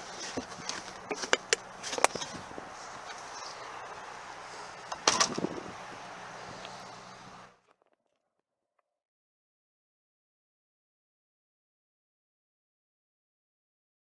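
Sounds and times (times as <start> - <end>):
car trunk lid shutting: 4.9 - 5.7.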